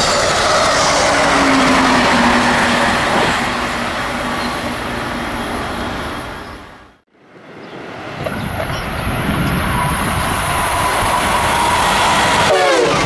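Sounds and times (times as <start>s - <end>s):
train wheels rushing on rails: 0.0s - 7.0s, 7.8s - 13.0s.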